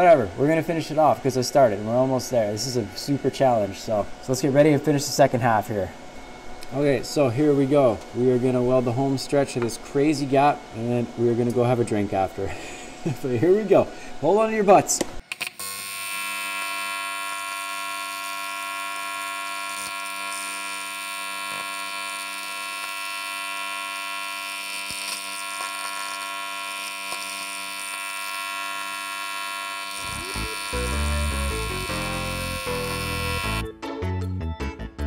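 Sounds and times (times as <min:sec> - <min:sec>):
welding arc buzzing: 0:15.2 - 0:33.7
music: 0:30.1 - 0:35.0.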